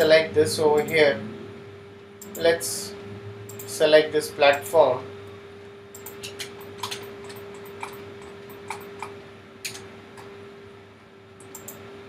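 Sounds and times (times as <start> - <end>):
faint steady hum: 0.0 - 12.0
keyboard and mouse clicking: 6.0 - 9.9, 11.4 - 11.8.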